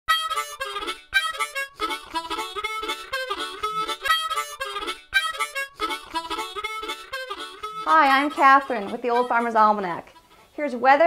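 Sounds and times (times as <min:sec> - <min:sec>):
instrumental theme music: 0:00.1 - 0:10.5.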